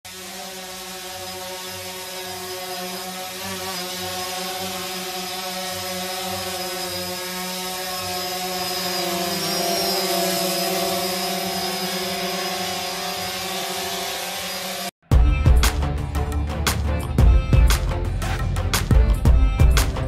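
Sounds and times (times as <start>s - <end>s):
drone propellers buzzing: 0.1s - 20.0s.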